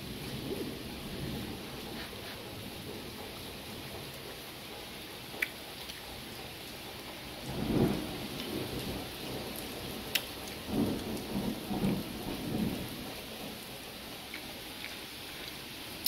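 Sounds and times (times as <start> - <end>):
thunder rumbling: 0.0 - 5.3, 7.2 - 14.3
steady rain: 0.0 - 16.0.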